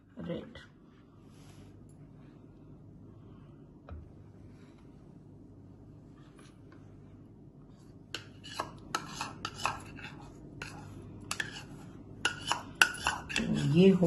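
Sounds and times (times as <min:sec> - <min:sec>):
metal spoon scraping a bowl: 0:08.2 - 0:14.0.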